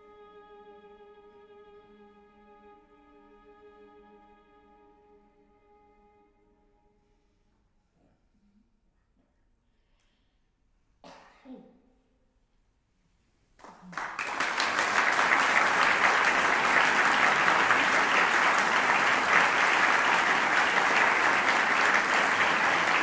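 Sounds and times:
audience applause: 13.6 - 23.0.

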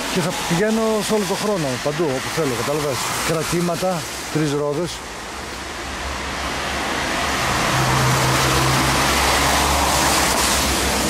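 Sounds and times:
road vehicle noise: 0.0 - 11.0.

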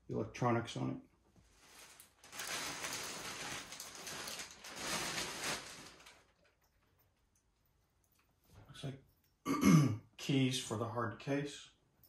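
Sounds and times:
plastic wrapping rustling: 1.5 - 6.9.

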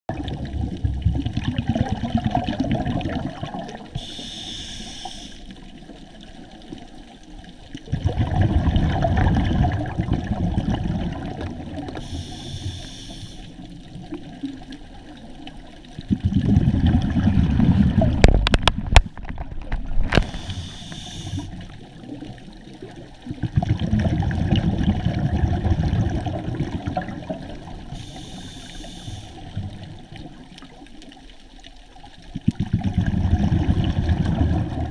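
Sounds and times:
exhaust bubbles rumbling: 0.1 - 4.0, 7.9 - 12.1, 16.0 - 20.4, 21.4 - 28.0, 32.4 - 34.9
regulator inhale hiss: 3.9 - 5.6, 12.0 - 13.7, 20.2 - 21.6, 27.9 - 29.6.

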